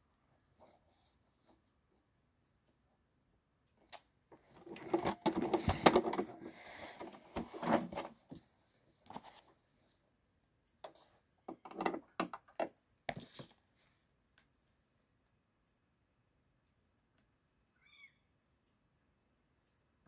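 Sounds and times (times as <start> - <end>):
rustling: 4.4 - 10.0
clicks and taps: 10.8 - 13.6.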